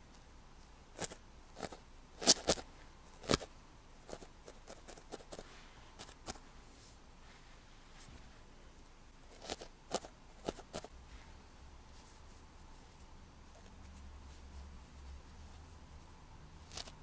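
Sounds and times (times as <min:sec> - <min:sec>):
felting needle poking wool: 0:01.0 - 0:02.6, 0:03.2 - 0:06.4, 0:09.3 - 0:10.9.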